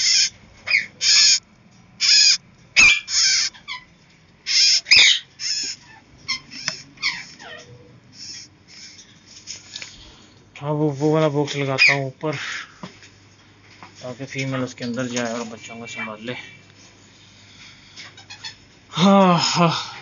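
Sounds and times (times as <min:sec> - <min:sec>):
birds screeching: 0:00.0 - 0:01.4, 0:02.0 - 0:10.1, 0:11.7 - 0:12.8, 0:17.5 - 0:18.8.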